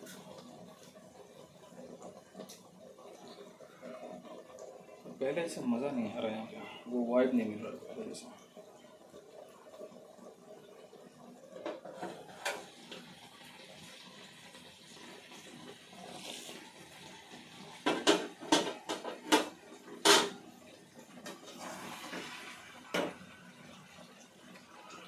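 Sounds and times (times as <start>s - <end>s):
chicken sizzling in oil: 0.0s - 1.1s, 3.4s - 25.0s
metal pan and utensil clanking: 17.9s - 20.4s.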